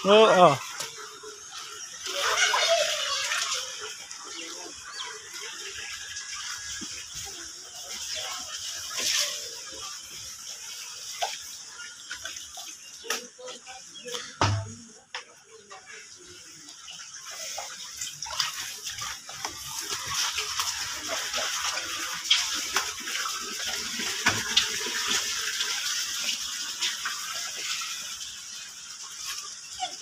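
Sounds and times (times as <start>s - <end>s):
rain falling: 0.0s - 12.3s
water drips and splashes: 0.0s - 30.0s.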